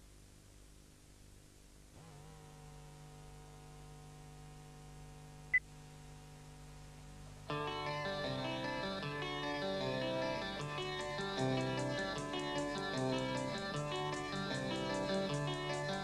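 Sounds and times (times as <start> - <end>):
steady hum: 0.0 - 16.0
tape hiss: 0.0 - 16.0
band guitar music: 7.5 - 16.0.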